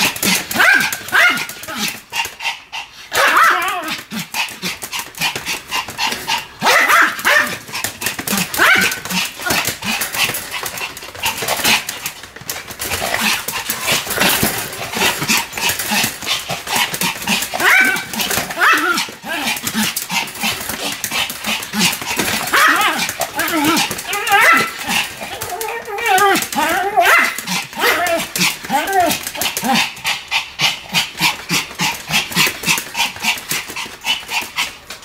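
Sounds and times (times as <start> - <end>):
paws clicking and scrabbling: 0.0 - 35.0
small dog barking: 0.6 - 1.6, 3.1 - 3.9, 6.6 - 7.6, 8.4 - 9.6, 17.6 - 19.0.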